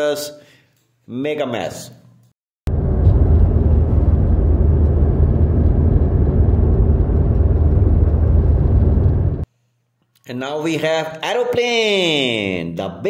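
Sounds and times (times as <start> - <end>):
road and engine noise: 2.7 - 9.4.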